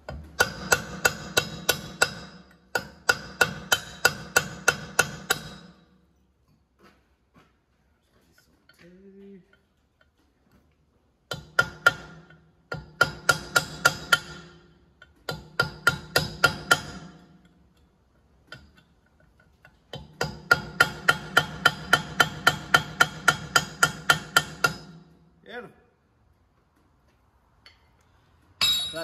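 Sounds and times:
hammer striking steel punch: 0.1 - 5.9, 11.3 - 14.7, 15.3 - 17.3, 19.9 - 25.2, 28.6 - 29.0.

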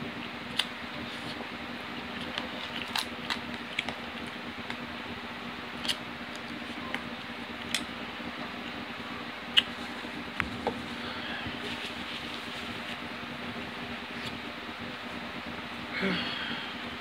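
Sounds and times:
chewing food: 2.1 - 4.8.

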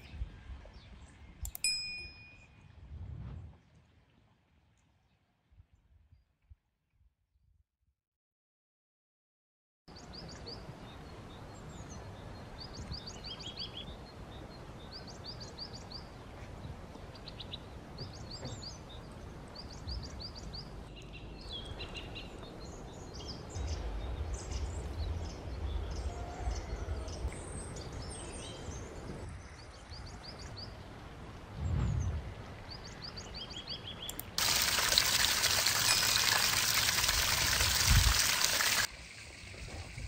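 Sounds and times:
low rumble: 2.8 - 3.6, 31.4 - 32.8
outdoor hiss: 34.4 - 40.0.

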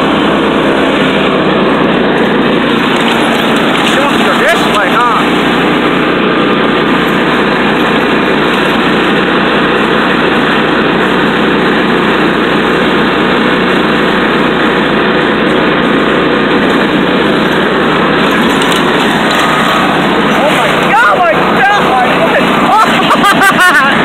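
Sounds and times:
riding lawn mower engine: 0.0 - 24.0.

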